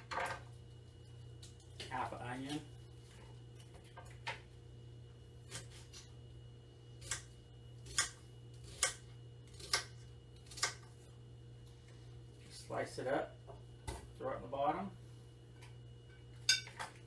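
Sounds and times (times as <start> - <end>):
knife slicing onion: 5.4 - 6.2, 7.0 - 11.1.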